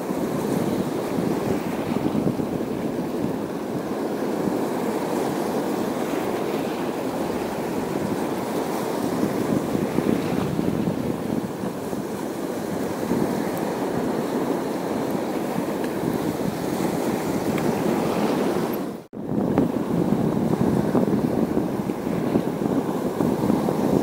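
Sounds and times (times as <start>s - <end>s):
waves washing on rocky shore: 0.0s - 24.0s
wind buffeting microphone: 0.0s - 24.0s.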